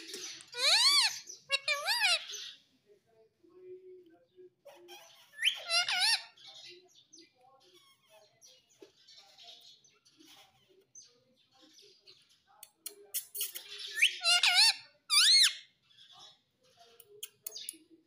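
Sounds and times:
parakeet chattering: 0.0s - 2.6s, 4.6s - 6.7s, 13.1s - 15.7s
shrill parakeet calls: 0.5s - 2.6s, 4.7s - 6.6s, 13.6s - 16.1s.

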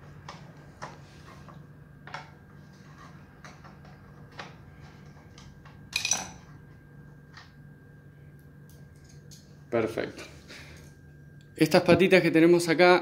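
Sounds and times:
screwdriver clattering on stone floor: 5.9s - 6.4s.

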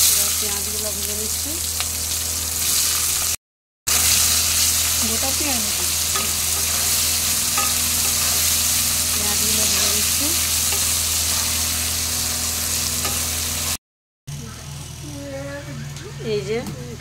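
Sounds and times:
onions sizzling in oil: 0.0s - 13.8s
spatula tapping and scraping pan: 5.8s - 8.5s.

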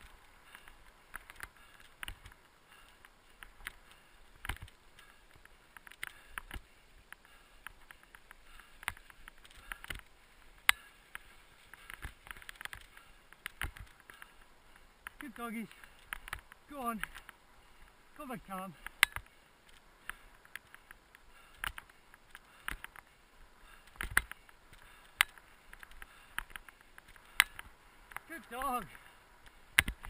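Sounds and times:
irregular clicks: 18.8s - 23.1s.

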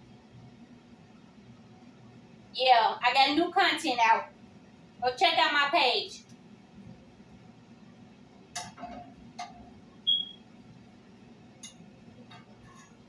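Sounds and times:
metal spoon scraping frying pan: 11.6s - 13.0s.

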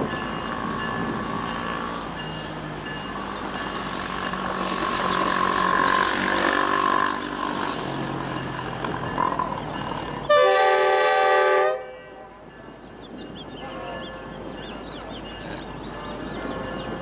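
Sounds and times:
road traffic passing: 0.0s - 17.0s
steam locomotive whistle: 10.3s - 12.4s.

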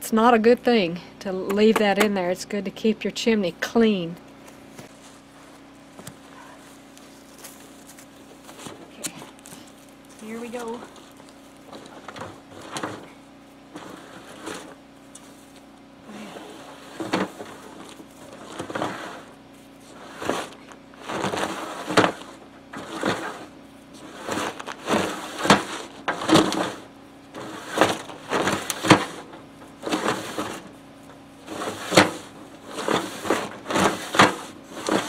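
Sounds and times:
sack of rocks scraping metal pipe: 11.7s - 14.8s, 16.3s - 30.8s, 31.4s - 35.0s.

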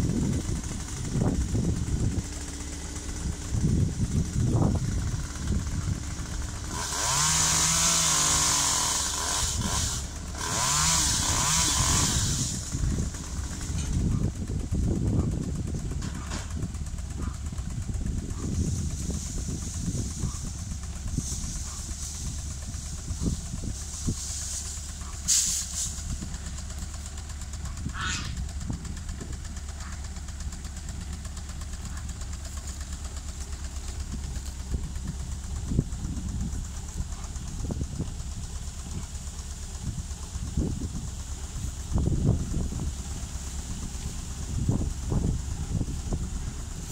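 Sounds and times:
boom lift engine running: 0.0s - 46.9s
chainsaw revving and cutting: 6.2s - 13.8s.

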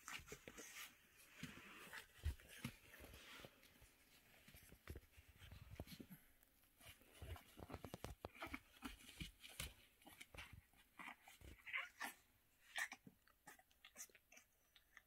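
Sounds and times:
puppy scuffling on a pad: 0.0s - 12.2s
puppy whining: 8.2s - 15.0s.

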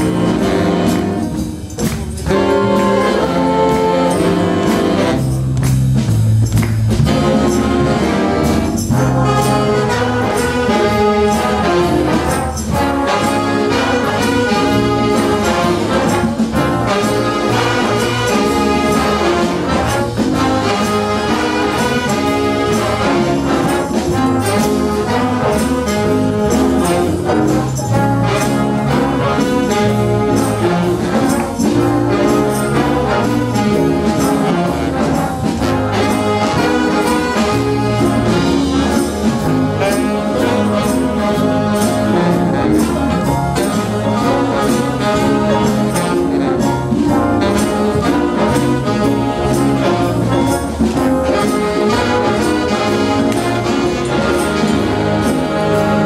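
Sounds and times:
jazz big band playing: 0.0s - 56.0s.

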